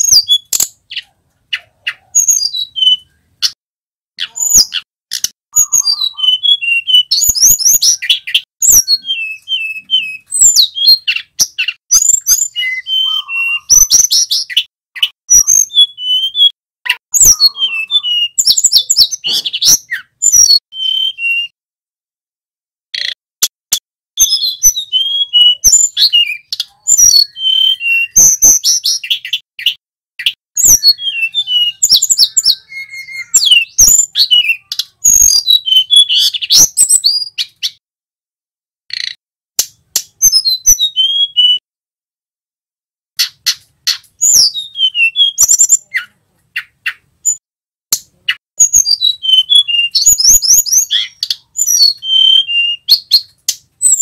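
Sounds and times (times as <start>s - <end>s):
flycatcher singing: 4.2s - 21.6s, 24.2s - 37.8s, 48.3s - 54.0s.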